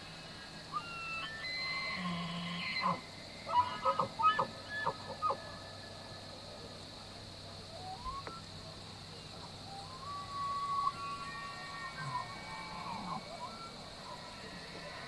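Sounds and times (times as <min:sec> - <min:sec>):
elk bugling: 0:09.7 - 0:14.8.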